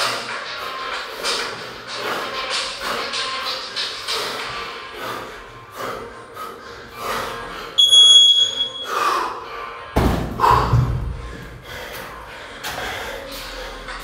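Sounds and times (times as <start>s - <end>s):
electronic timer beep: 7.8s - 8.9s.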